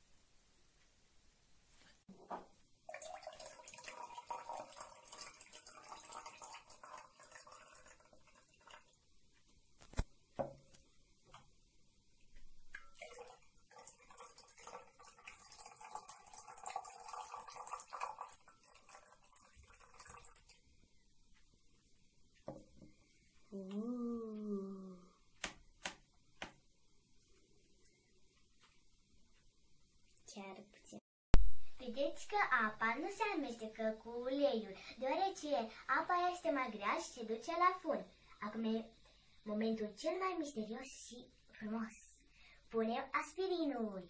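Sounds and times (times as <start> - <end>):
water trickling and dripping: 2.8 - 9.1, 12.2 - 20.8.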